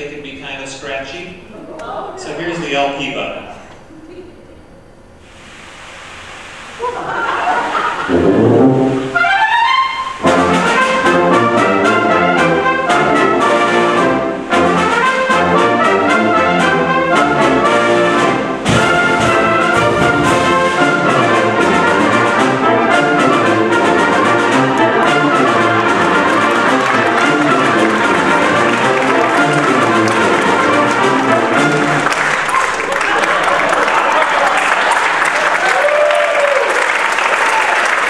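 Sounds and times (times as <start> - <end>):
wind band playing: 6.8 - 36.2.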